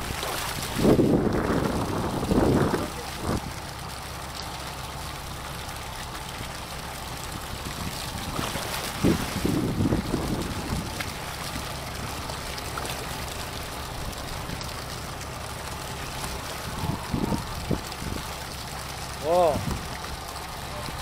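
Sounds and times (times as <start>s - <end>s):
wind on microphone: 0.0s - 3.6s, 9.0s - 11.1s, 16.7s - 18.3s
sea water washing against hull: 0.0s - 21.0s.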